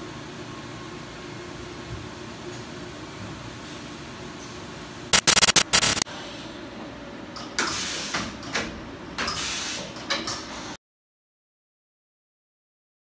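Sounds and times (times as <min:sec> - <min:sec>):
hissing bursts: 0:05.2 - 0:06.0
machine hum: 0:05.2 - 0:06.0.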